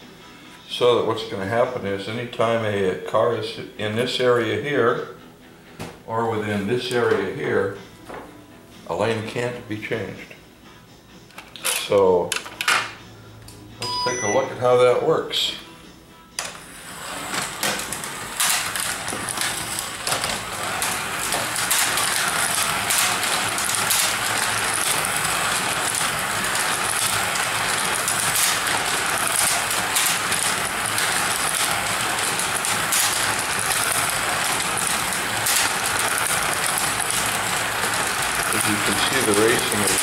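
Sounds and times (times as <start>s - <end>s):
cars rattling in slots: 16.4s - 40.0s
slot car motors whirring: 16.4s - 40.0s.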